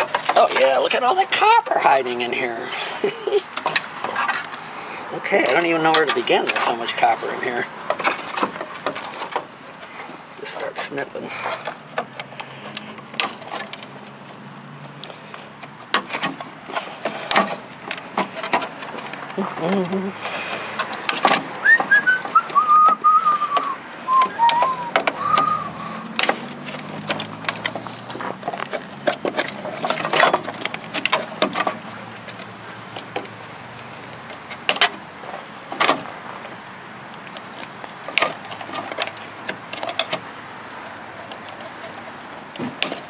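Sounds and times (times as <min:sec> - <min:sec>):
wavering whistle falling in pitch: 0:21.6 - 0:25.9.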